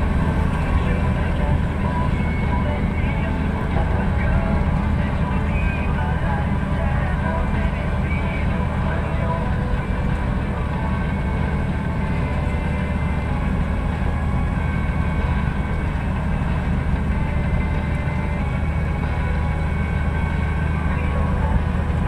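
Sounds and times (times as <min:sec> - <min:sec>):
faint whines: 0:00.0 - 0:22.0
vehicle driving on dirt track: 0:00.0 - 0:22.0.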